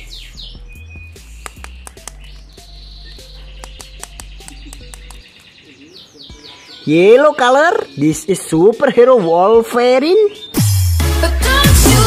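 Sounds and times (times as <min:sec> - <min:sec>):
music with low bass notes: 0:00.0 - 0:05.3, 0:10.5 - 0:12.0
bird-like chirps: 0:00.0 - 0:10.7
sharp clicks: 0:01.2 - 0:05.4.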